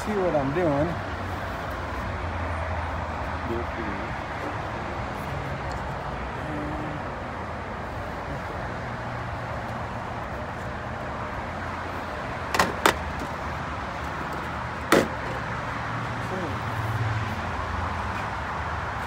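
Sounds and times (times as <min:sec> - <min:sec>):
steady background noise: 0:00.0 - 0:19.0.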